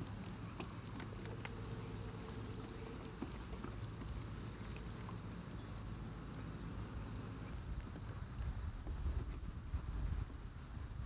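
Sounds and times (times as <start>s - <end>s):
wind rumble on microphone: 7.4s - 11.0s.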